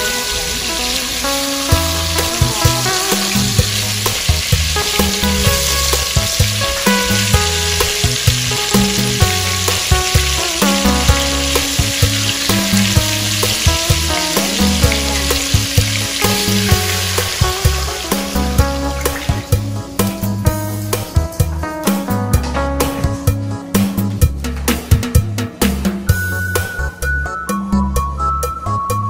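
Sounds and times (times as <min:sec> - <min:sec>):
fish sizzling in oil: 0:00.0 - 0:21.6
background music with a beat: 0:00.0 - 0:29.0.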